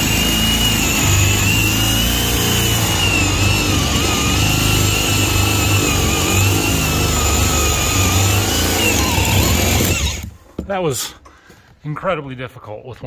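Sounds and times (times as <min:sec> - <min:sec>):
drill boring into wood: 0:00.0 - 0:10.4.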